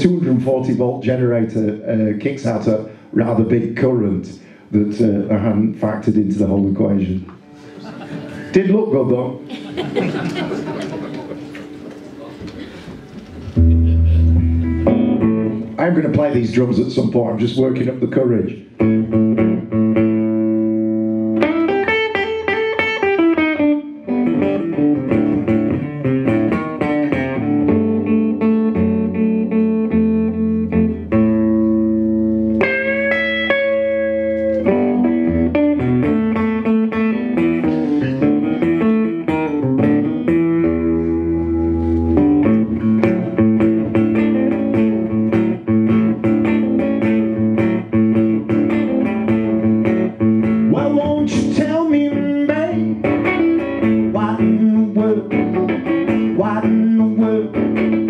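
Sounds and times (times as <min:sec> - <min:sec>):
fingerstyle blues guitar: 0:06.4 - 0:09.7, 0:10.4 - 0:17.2, 0:18.6 - 0:58.0.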